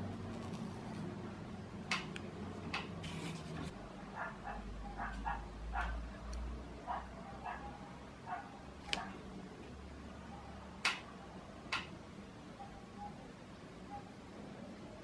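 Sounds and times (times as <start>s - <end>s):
dog barking: 4.1s - 6.0s, 6.9s - 9.2s.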